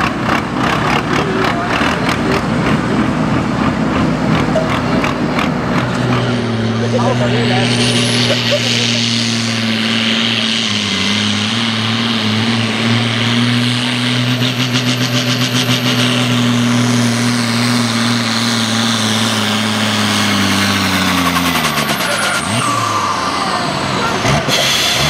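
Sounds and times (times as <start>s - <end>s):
tractor diesel engine under load: 0.0s - 25.0s.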